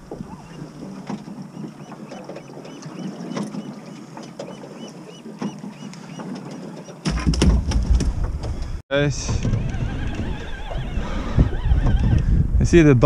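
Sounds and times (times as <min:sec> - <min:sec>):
low rumble on microphone: 0:07.2 - 0:13.0.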